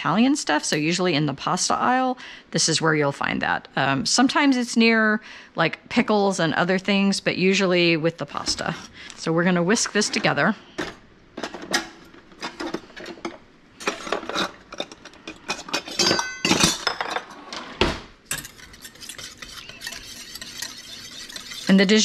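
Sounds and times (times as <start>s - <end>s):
whisk beating in bowl: 18.4s - 22.0s.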